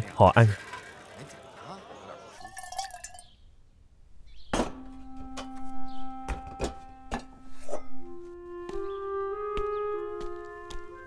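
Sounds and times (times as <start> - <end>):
higher held notes: 4.7 - 11.0.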